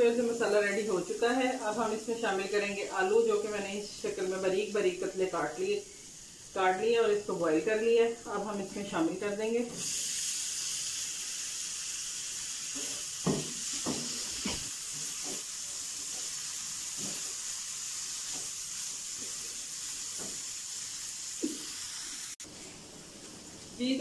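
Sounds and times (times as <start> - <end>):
potatoes sizzling in hot oil: 0.0 - 24.0
spatula scraping and knocking pan: 12.8 - 15.5.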